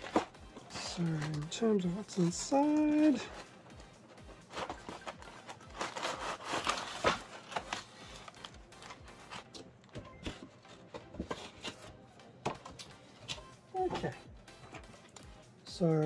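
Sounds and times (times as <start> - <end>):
packaging rustling: 0.0 - 11.9
cardboard rubbing and scraping: 4.5 - 9.5.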